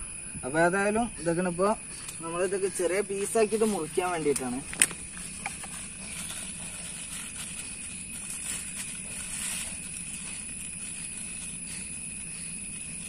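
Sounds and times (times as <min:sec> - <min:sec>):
high-pitched background drone: 0:00.0 - 0:13.0
plastic bag crinkling: 0:03.0 - 0:13.0.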